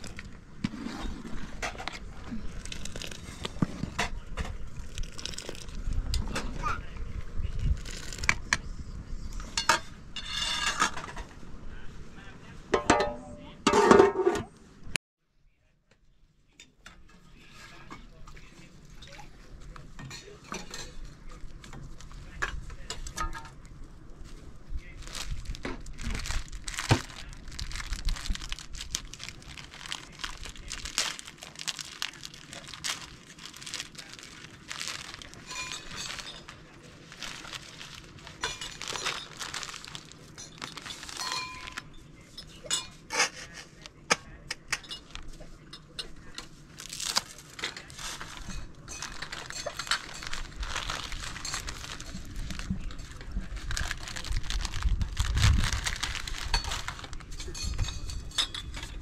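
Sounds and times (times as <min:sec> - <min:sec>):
rustling and crinkling: 0:00.0 - 0:12.3, 0:17.0 - 0:59.0
utensils and dishes clinking: 0:19.9 - 0:21.4, 0:28.8 - 0:54.3, 0:56.1 - 0:59.0.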